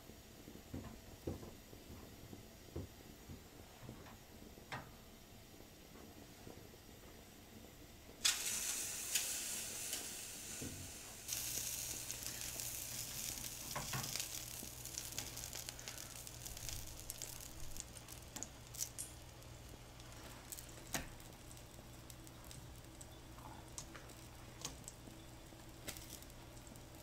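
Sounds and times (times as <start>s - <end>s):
sausages sizzling on a grill: 8.2s - 27.0s.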